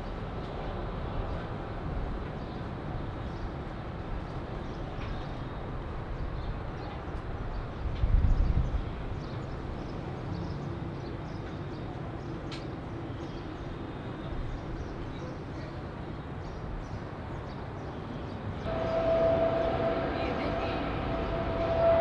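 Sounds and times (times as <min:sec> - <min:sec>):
distant jet airliner roaring: 0:18.6 - 0:22.0.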